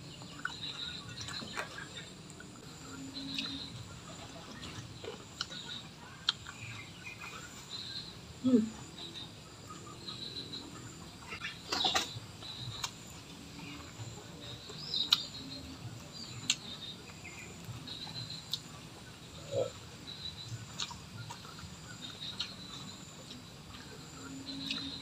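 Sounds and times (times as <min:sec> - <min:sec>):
small birds chirping: 0:00.0 - 0:25.0
lip smacks and chewing clicks: 0:06.2 - 0:06.6, 0:20.6 - 0:21.7.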